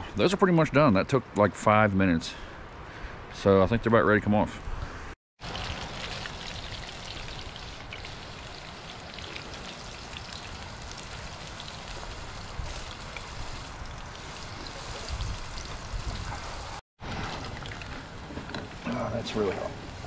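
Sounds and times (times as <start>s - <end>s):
hot oil sizzling and crackling: 5.4s - 18.4s.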